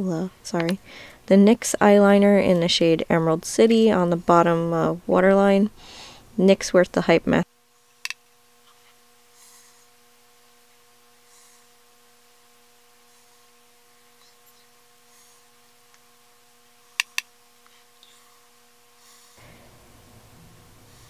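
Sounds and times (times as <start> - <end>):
electrical hum: 0.0 - 21.0
sharp clicks: 17.0 - 17.3.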